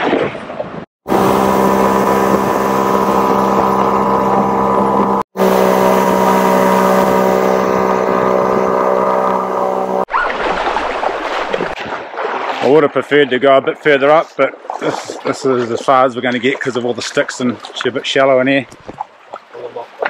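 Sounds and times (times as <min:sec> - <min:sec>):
outboard motor drone: 0:01.0 - 0:10.1.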